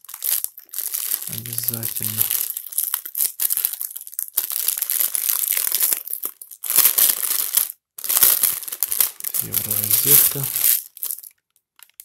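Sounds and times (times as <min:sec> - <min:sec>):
plastic bag crinkling: 0:00.0 - 0:12.0.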